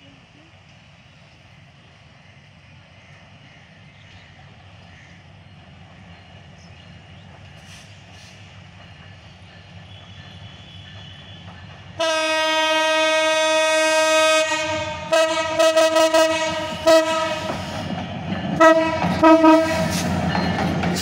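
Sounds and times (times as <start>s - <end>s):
locomotive rumble: 0.0s - 21.0s
train horn blast: 12.0s - 17.9s, 18.6s - 20.2s.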